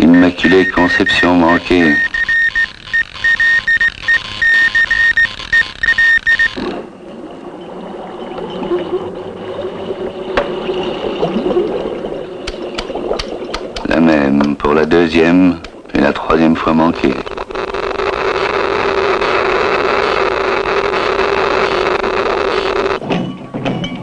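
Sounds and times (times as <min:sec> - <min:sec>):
high electronic beeping tone: 0:00.1 - 0:06.6.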